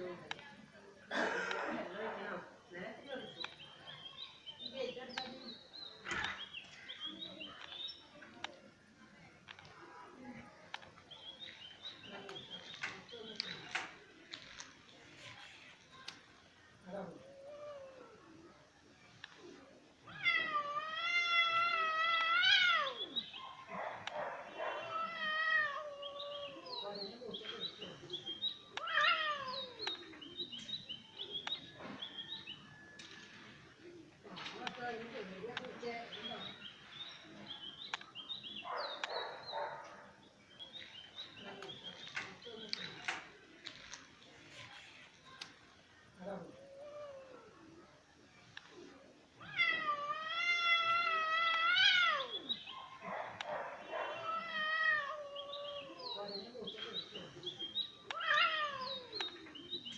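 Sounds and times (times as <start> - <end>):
birds chirping: 0.0 - 17.4, 18.1 - 59.9
cat yowling: 20.1 - 23.2, 24.7 - 26.7, 28.8 - 29.8, 49.4 - 52.5, 53.9 - 56.0, 58.1 - 59.2.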